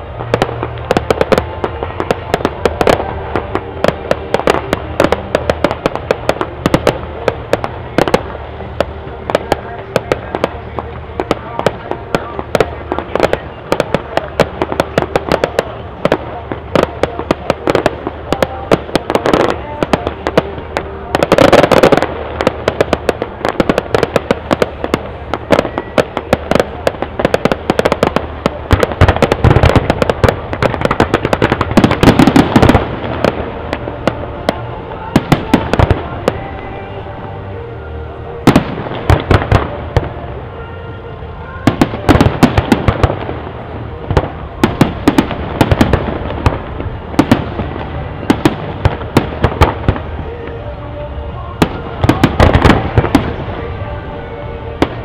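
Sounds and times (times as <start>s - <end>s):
fireworks bangs and crackles: 0.0s - 55.0s.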